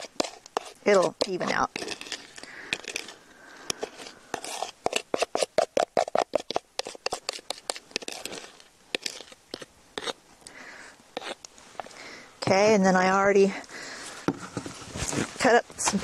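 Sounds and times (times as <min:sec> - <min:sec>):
spoon scraping plastic bowl: 0:00.0 - 0:10.2, 0:11.2 - 0:11.4.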